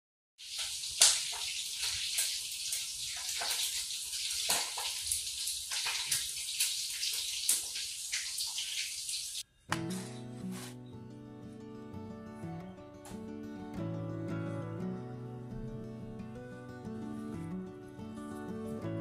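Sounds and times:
hot oil sizzling and popping: 0.4s - 9.5s.

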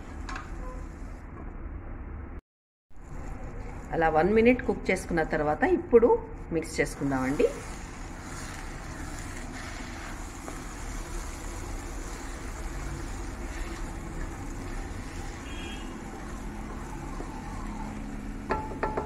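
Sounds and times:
steady stove rushing noise: 6.6s - 19.0s
wooden spatula stirring curry in pan: 7.0s - 19.0s.

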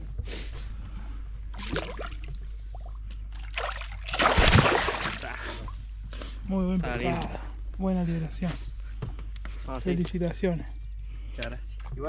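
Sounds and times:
water splashing: 1.5s - 5.8s.

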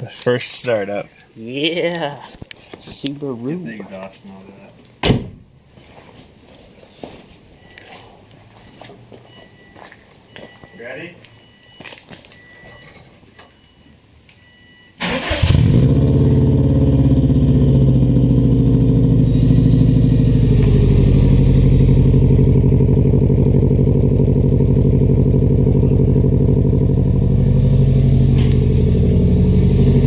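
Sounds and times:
car engine cranking and starting: 15.0s - 30.0s
car engine idling loudly: 15.8s - 30.0s.

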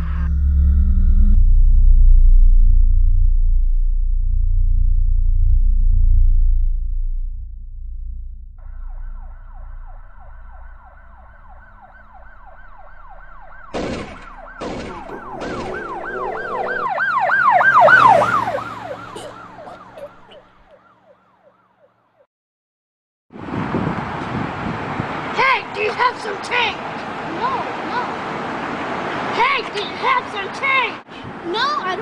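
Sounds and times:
emergency siren yelping: 8.6s - 21.9s
sharp knocks: 13.7s - 17.0s.

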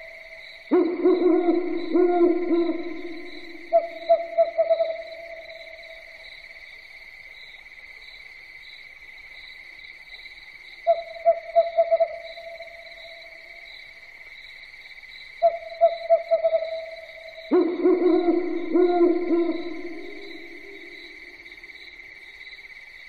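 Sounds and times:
owl hooting: 0.0s - 6.0s, 10.9s - 13.4s, 15.4s - 21.2s
insects chirring: 0.0s - 23.0s.

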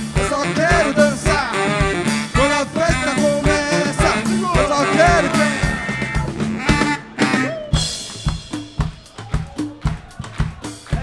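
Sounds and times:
live band playing funk: 0.0s - 11.0s
kick drum beat: 7.8s - 11.0s.

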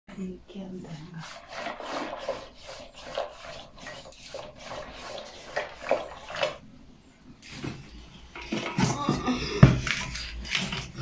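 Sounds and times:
stick scraping in metal pot: 0.9s - 6.6s, 7.4s - 11.0s.

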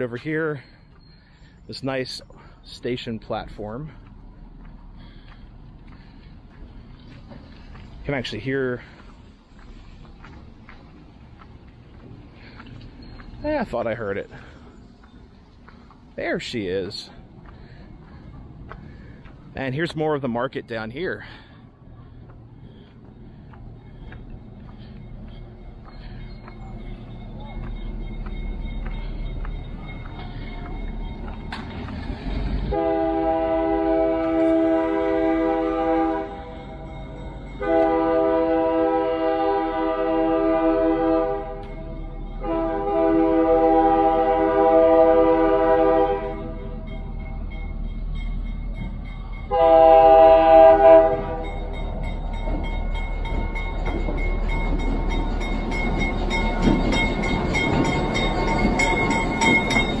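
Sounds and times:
locomotive engine rumble: 0.0s - 60.0s
bell ringing: 24.9s - 32.5s, 51.3s - 60.0s
locomotive air horn blasts: 32.6s - 36.6s, 37.6s - 46.8s, 49.5s - 51.6s.

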